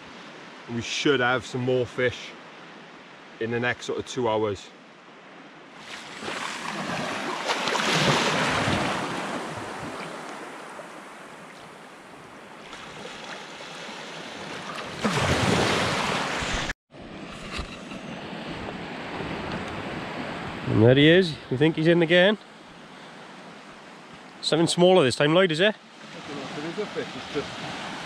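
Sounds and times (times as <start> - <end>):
surf washing over sand: 12.6 - 20.9, 26.0 - 28.0.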